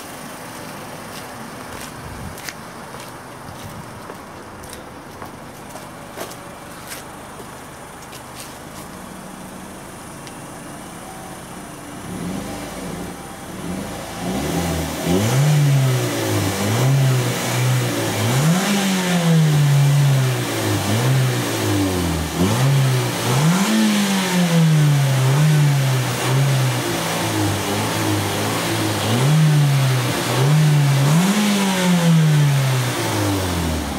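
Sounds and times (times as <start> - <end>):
car engine revving: 8.6 - 33.9.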